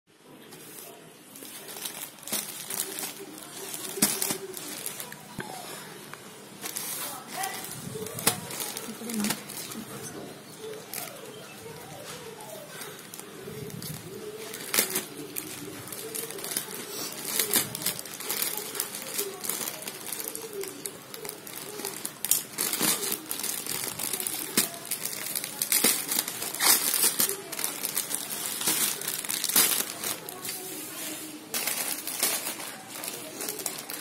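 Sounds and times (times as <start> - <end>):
plastic bag crinkling: 0.4 - 34.0
scissors cutting plastic: 13.8 - 30.6.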